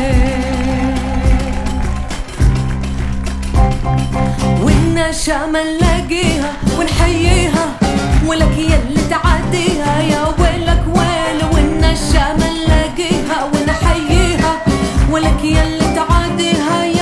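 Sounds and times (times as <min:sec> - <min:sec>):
woman singing into a microphone: 0:00.0 - 0:01.8, 0:04.5 - 0:17.0
band playing a steady beat: 0:00.0 - 0:05.1, 0:05.8 - 0:17.0.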